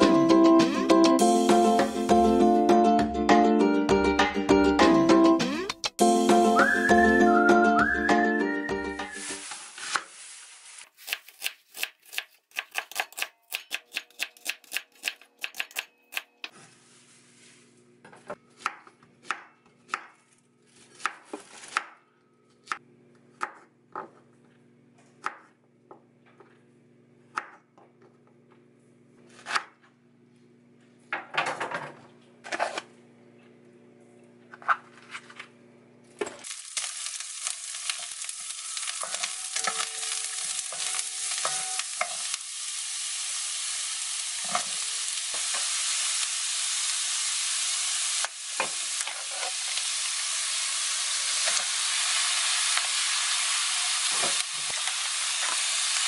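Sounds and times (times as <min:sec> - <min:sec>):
garlic sizzling in oil: 0:08.9 - 0:12.0, 0:36.4 - 0:56.0.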